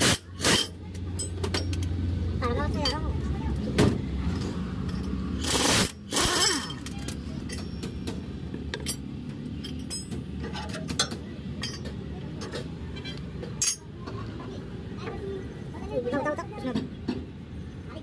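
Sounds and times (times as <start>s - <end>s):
metal tools clinking and knocking: 0.4s - 2.0s, 6.2s - 13.9s.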